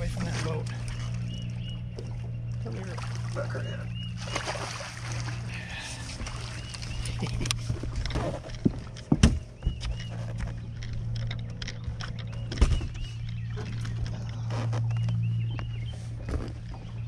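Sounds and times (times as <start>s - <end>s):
steady low hum: 0.0s - 17.0s
knocks and thumps on boat deck: 6.0s - 10.7s, 11.8s - 17.0s.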